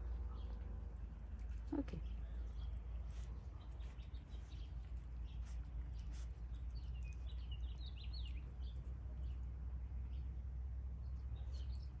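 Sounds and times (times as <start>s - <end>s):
low outdoor rumble: 0.0s - 12.0s
small birds chirping: 0.0s - 12.0s.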